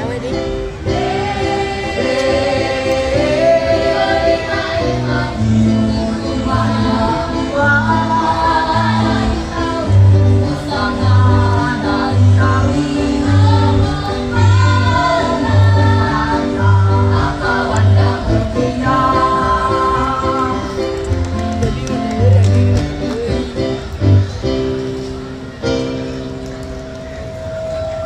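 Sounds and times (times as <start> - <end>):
musical accompaniment: 0.0 - 28.0
children's choir singing: 0.8 - 21.0.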